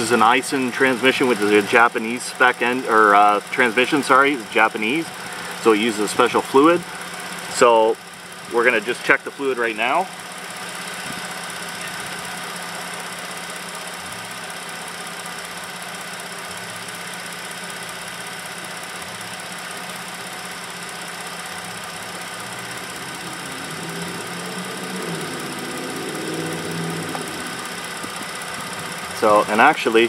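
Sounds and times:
car engine idling: 0.0s - 30.0s.

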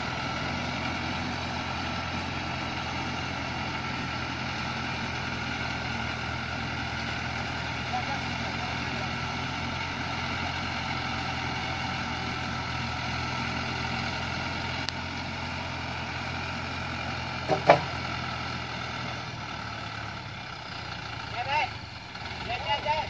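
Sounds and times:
diesel truck engine running: 0.0s - 23.0s.

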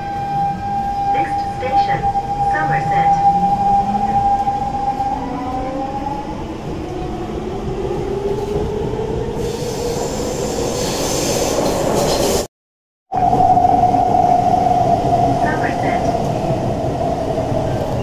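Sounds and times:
train rolling rumble: 0.0s - 12.5s.

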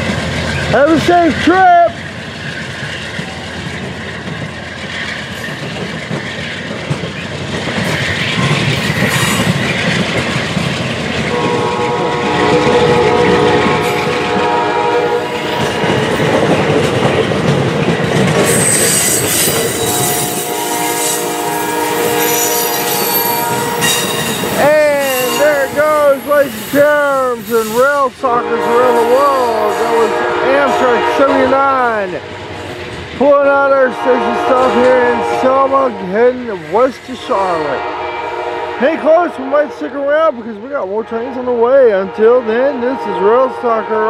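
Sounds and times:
train wheels rumbling and clicking: 0.0s - 42.6s
train horn chord: 11.3s - 15.6s, 19.7s - 25.8s, 28.3s - 32.0s, 33.8s - 36.2s, 37.6s - 39.8s
high-pitched wheel squeal: 18.4s - 27.9s.

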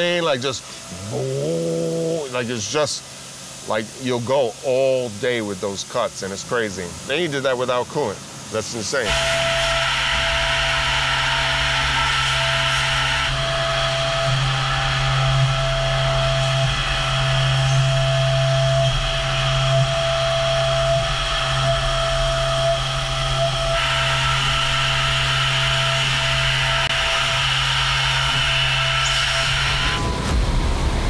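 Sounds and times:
milling machine cutting metal: 8.8s - 31.0s.

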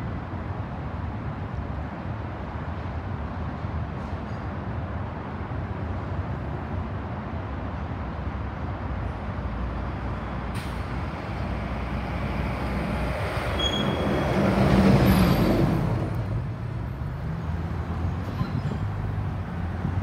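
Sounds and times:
large vehicle passing: 10.6s - 20.0s.

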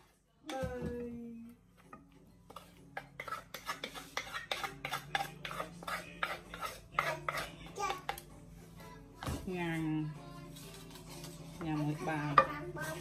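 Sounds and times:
utensil scraping wooden mortar: 2.5s - 7.6s.

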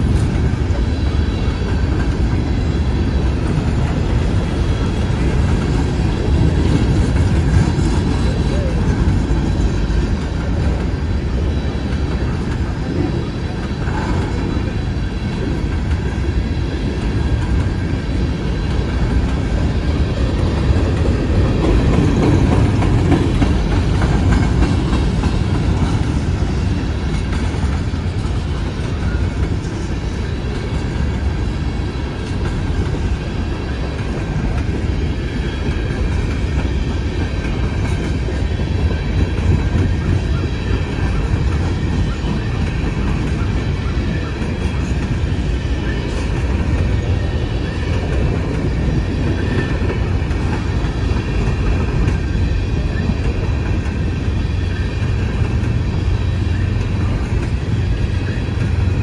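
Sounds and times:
freight train rolling past: 0.0s - 59.0s
steel wheels on rails: 0.0s - 59.0s.

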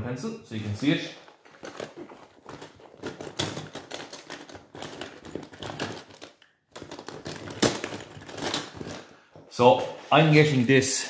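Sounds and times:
drawing tools clicking and rustling: 1.4s - 9.2s.

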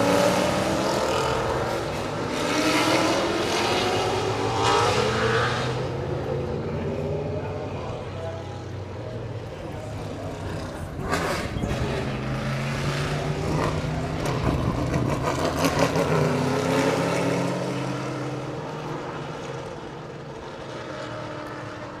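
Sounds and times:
race car engines passing: 0.0s - 22.0s.

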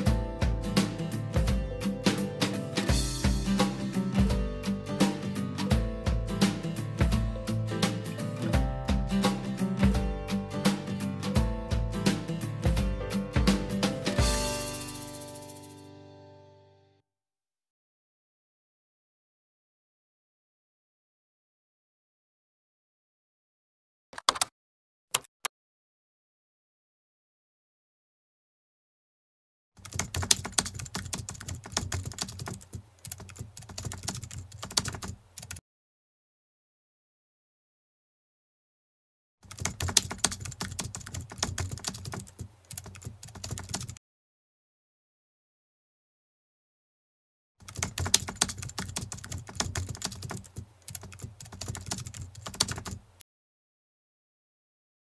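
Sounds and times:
keyboard key clicks: 24.2s - 24.5s, 25.1s - 25.3s
rapid keyboard typing clicks: 24.2s - 24.5s, 29.8s - 35.6s, 39.4s - 44.0s, 47.6s - 53.0s.

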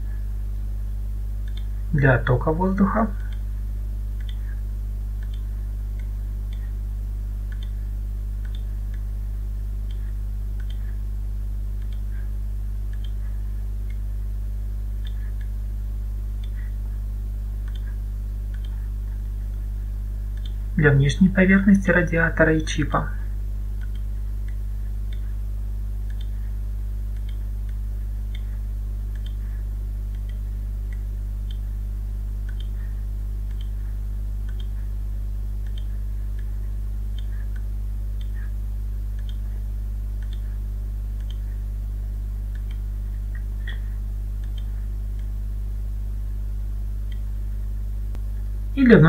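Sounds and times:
steady low hum: 0.0s - 49.0s
computer mouse clicks: 1.4s - 1.7s, 4.2s - 4.4s, 5.2s - 6.7s, 7.5s - 7.8s, 8.4s - 9.0s, 9.9s - 11.0s, 11.8s - 12.1s, 12.9s - 13.2s, 17.6s - 18.8s, 20.4s - 20.6s, 26.0s - 26.4s, 27.1s - 28.5s, 29.1s - 29.4s, 32.4s - 32.8s, 33.5s - 33.8s, 34.4s - 34.8s, 35.6s - 36.5s, 39.2s - 39.5s, 40.2s - 40.5s, 41.2s - 41.5s, 42.5s - 45.3s.

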